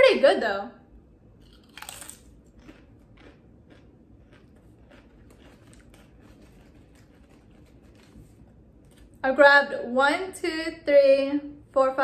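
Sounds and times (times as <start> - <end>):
crisp crunching: 1.4 - 9.2.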